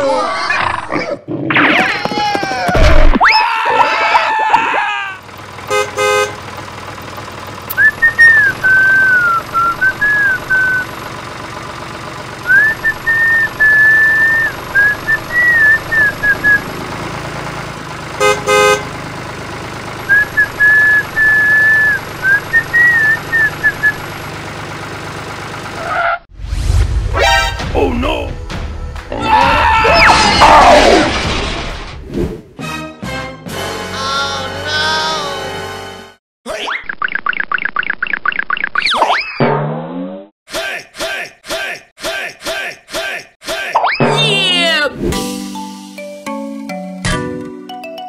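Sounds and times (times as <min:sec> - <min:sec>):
tractor engine hum: 0:04.7 - 0:26.2
person whistling a tune: 0:07.7 - 0:10.9, 0:12.5 - 0:16.6, 0:20.1 - 0:24.0.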